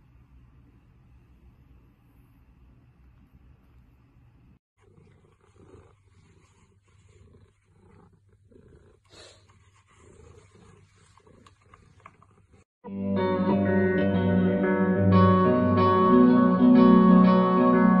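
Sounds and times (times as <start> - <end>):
cat purring faintly: 0.0 - 12.7
face rubbing against bristle groomer: 4.8 - 12.7.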